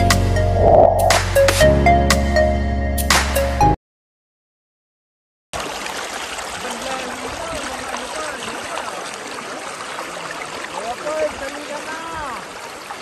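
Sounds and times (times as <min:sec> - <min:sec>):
stream water rushing: 0:05.6 - 0:13.0.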